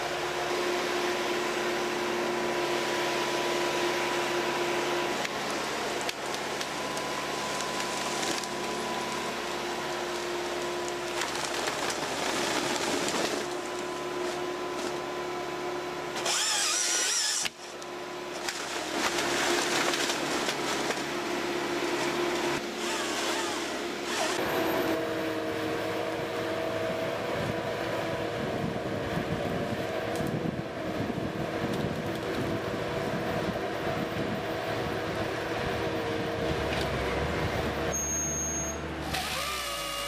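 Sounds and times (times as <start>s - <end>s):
harvester engine and hydraulics whine: 0.0s - 40.0s
harvester head handling timber: 10.0s - 15.2s.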